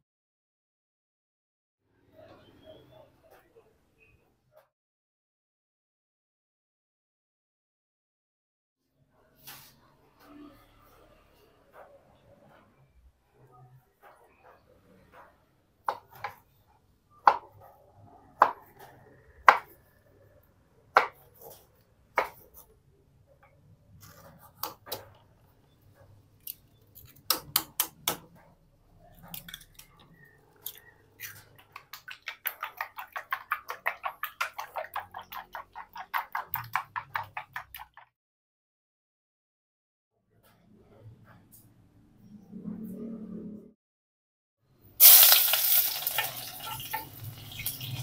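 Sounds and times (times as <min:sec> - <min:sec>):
eggs being beaten in bowl: 0:31.2 - 0:38.1.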